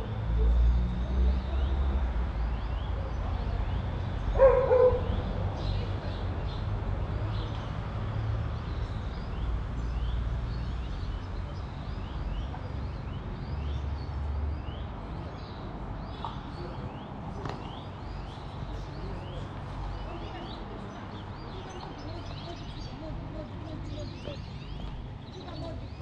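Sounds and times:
small birds chirping: 0:01.0 - 0:26.0
dog barking: 0:04.4 - 0:05.1.

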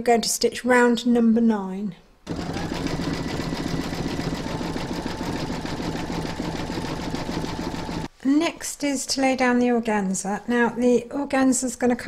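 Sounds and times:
motor hum: 0:02.3 - 0:08.1.

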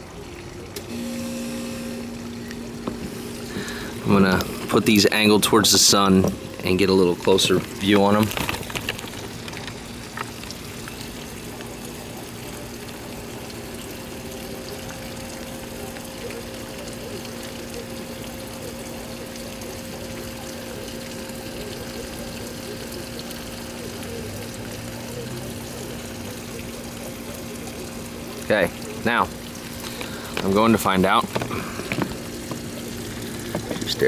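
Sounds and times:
higher hum: 0:00.8 - 0:07.9.

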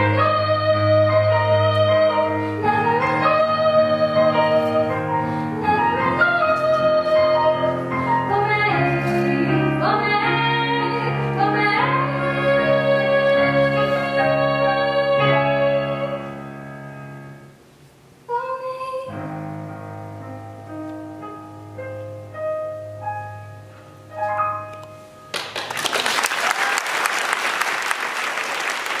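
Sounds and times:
piano chords and notes: 0:00.0 - 0:17.9, 0:19.0 - 0:25.7
audience applause: 0:25.3 - 0:29.0.

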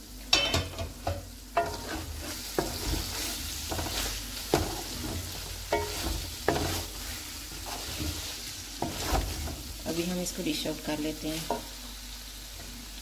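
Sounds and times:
curry sizzling: 0:00.0 - 0:13.0
spatula scraping metal pot: 0:01.6 - 0:09.6.

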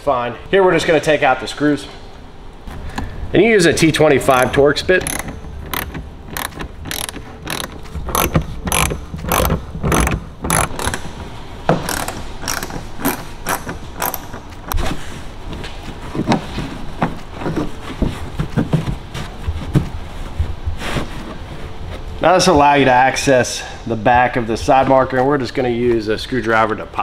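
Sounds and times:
ratchet driver clicking: 0:04.3 - 0:11.1, 0:11.8 - 0:14.8.

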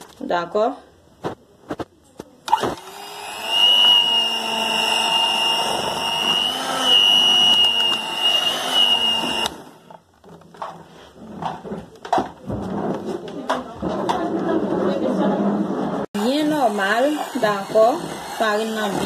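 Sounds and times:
small electric motor whining: 0:02.5 - 0:09.8.

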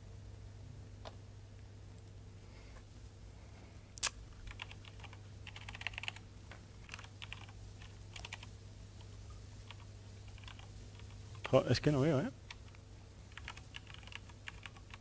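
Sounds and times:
laptop keyboard typing: 0:04.5 - 0:06.2, 0:06.8 - 0:08.6, 0:09.6 - 0:11.6, 0:12.5 - 0:15.0.

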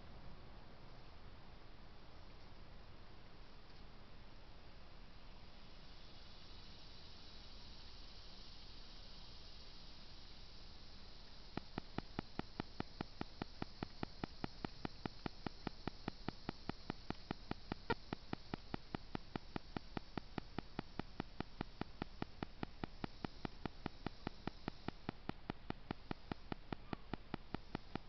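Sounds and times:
faint hiss and hum: 0:00.0 - 0:28.0
rapid ticking clicks: 0:11.5 - 0:28.0.

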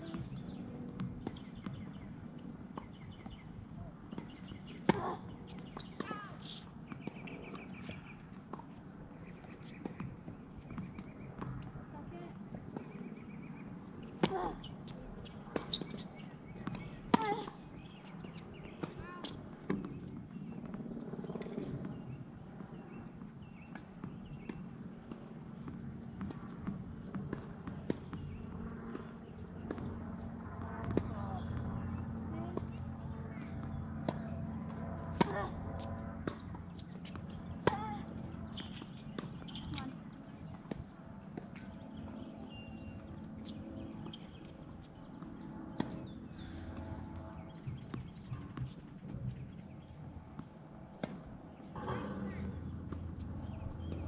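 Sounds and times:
steady low hum: 0:00.0 - 0:54.0
tennis balls bouncing and struck: 0:00.0 - 0:54.0.

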